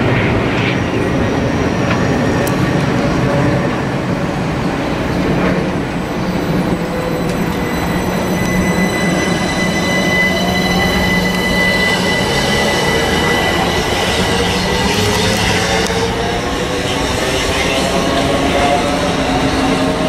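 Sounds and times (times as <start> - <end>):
electric train passing slowly: 0.0 - 20.0
high whining tones: 6.1 - 20.0.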